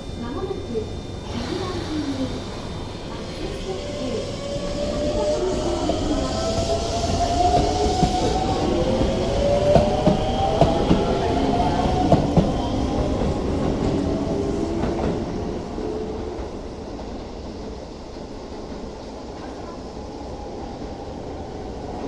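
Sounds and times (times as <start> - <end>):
train traction motors whining: 0.0 - 16.8.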